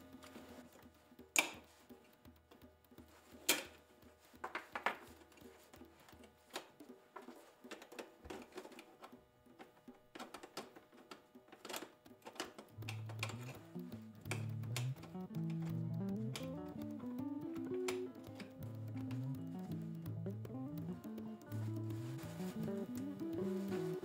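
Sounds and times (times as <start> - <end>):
metal lock parts clicking: 10.2 - 16.5.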